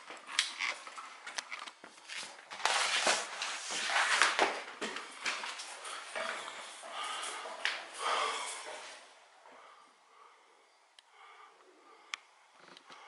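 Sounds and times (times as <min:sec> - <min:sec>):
rustling and scraping: 0:00.0 - 0:09.1
footsteps and knocks: 0:03.4 - 0:09.6.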